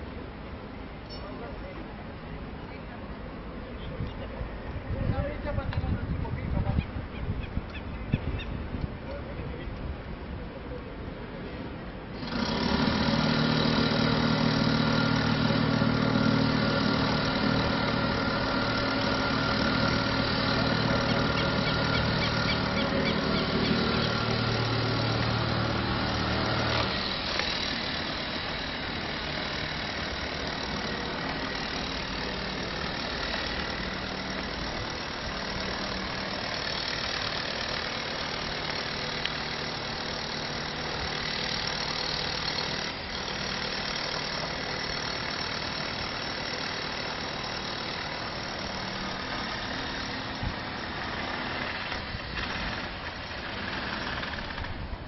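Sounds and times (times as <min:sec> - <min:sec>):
engine humming: 0:11.4 - 0:55.0.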